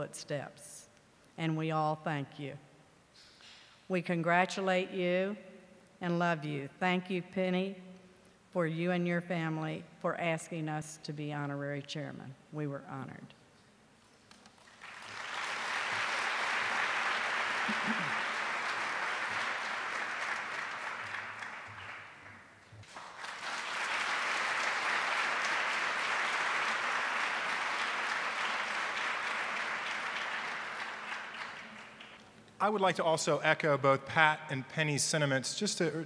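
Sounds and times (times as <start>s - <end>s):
audience applauding: 14.6s - 32.3s.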